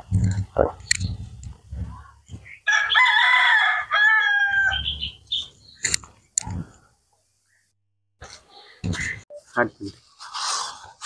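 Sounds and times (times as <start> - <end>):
rooster crowing: 2.6 - 5.0.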